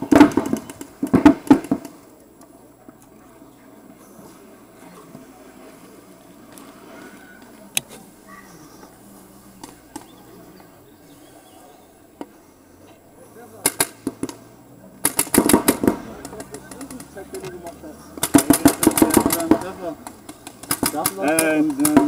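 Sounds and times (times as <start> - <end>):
paintball markers firing: 0.1 - 2.0, 13.6 - 14.4, 15.0 - 17.5, 18.2 - 22.0.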